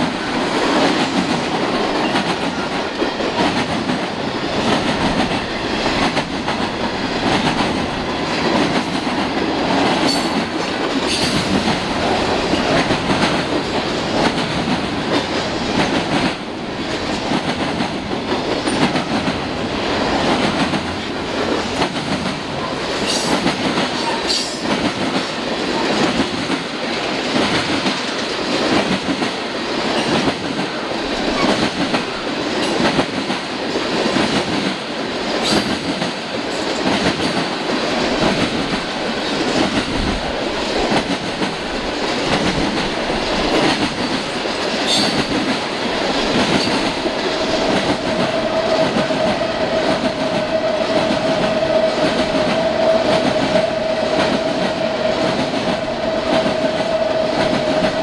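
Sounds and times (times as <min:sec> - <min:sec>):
train wheels clacking over rail joints: 0:00.0 - 0:58.0.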